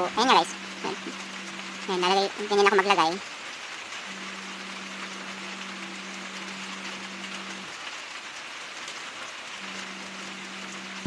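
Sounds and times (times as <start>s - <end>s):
low hum: 0.0s - 2.8s, 4.0s - 7.7s.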